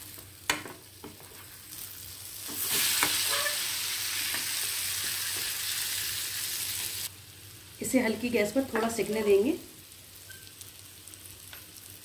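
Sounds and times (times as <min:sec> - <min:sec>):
loud steady sizzling: 0:00.0 - 0:12.0
spatula scraping pan: 0:02.5 - 0:03.6.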